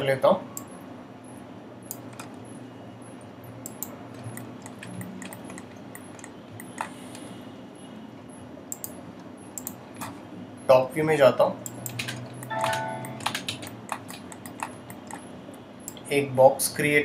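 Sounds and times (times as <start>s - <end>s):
mouse and keyboard clicks: 11.7s - 15.2s.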